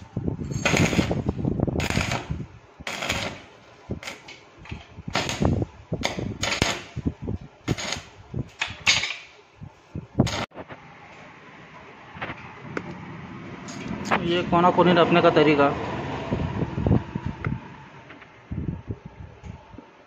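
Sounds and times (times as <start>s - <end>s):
welding arc crackling: 0.0s - 9.3s, 10.0s - 10.6s.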